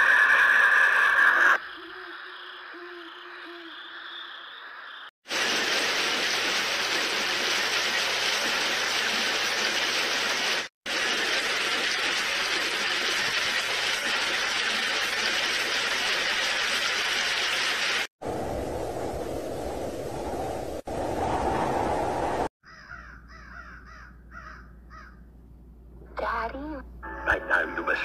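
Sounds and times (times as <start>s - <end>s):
heavy rain hiss: 5.3s - 18.1s
dull wind noise: 18.2s - 22.5s.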